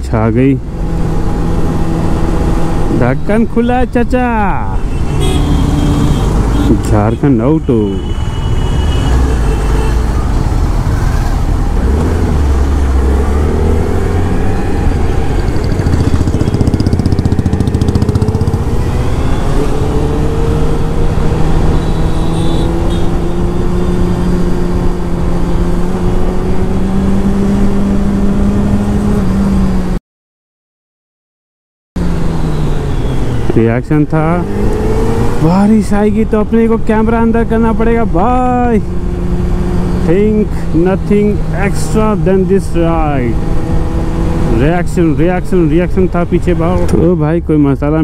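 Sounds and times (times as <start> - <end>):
motorcycle engine running: 15.0 - 19.5.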